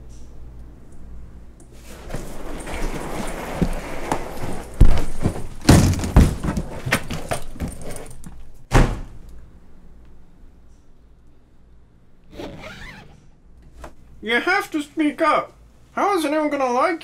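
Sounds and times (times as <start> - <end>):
rustling: 1.7 - 8.6
loud thumps and knocks: 4.8 - 7.7.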